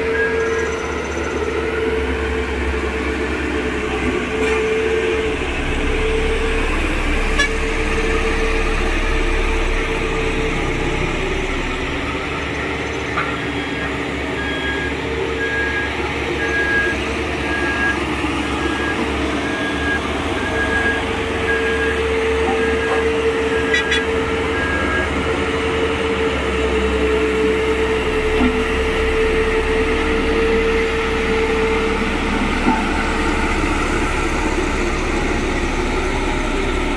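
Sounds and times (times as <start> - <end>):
reversing alarm beeping: 0.0 - 25.4
road roller diesel engine: 0.0 - 36.9.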